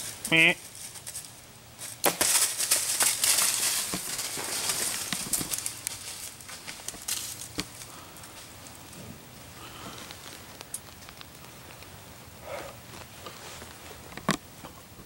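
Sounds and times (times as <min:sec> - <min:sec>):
footsteps crunching dry leaves: 0:00.0 - 0:08.9.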